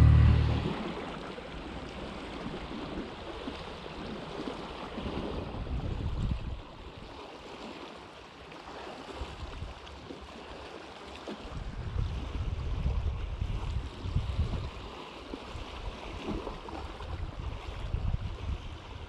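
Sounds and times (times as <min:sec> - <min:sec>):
wind buffeting microphone: 0:00.0 - 0:03.7, 0:05.0 - 0:06.7, 0:11.5 - 0:14.9, 0:15.6 - 0:19.0
water lapping against boat: 0:00.0 - 0:19.0.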